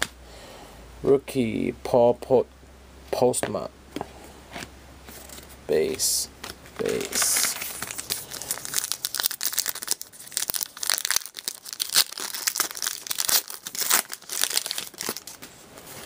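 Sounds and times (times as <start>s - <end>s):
card pack wrapper crinkling: 5.2s - 15.5s.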